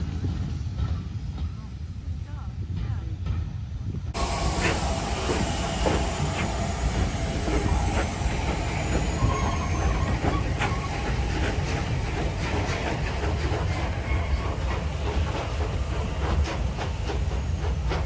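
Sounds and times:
wheels rumbling on rail: 0.0s - 18.0s
faint high wheel squeal: 4.2s - 11.8s, 13.6s - 14.8s
steam hissing: 4.2s - 18.0s.

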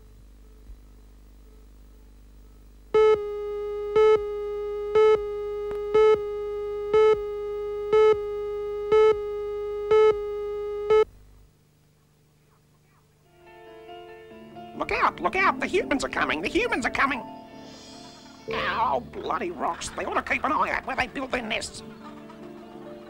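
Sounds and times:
buzzy electronic tone: 3.0s - 11.0s
countdown beeps: 3.0s - 11.1s.

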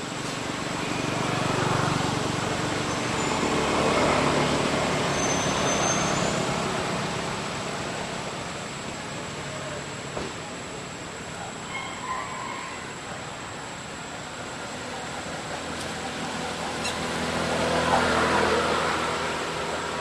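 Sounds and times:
vehicle passing: 14.7s - 20.0s.

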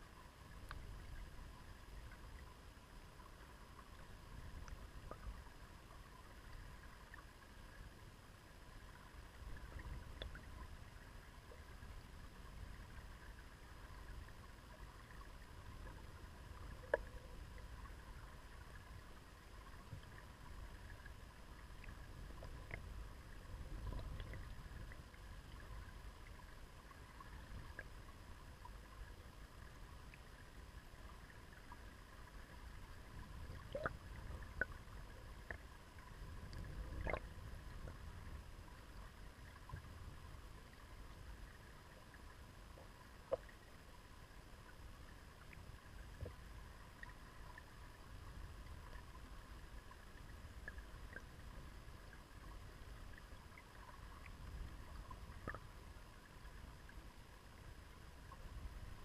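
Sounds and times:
muffled underwater river rumble: 0.0s - 59.0s.

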